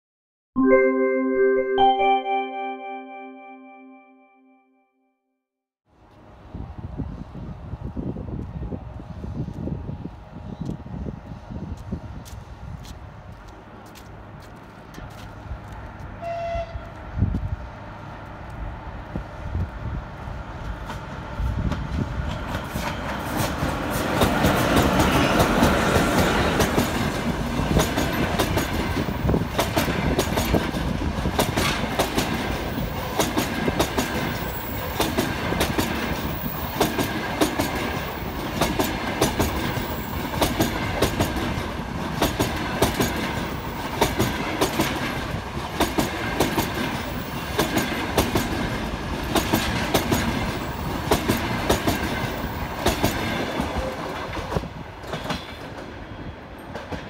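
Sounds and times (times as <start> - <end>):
electric locomotive passing: 6.0 - 57.0
train wheels clicking over rail joints: 20.6 - 56.0.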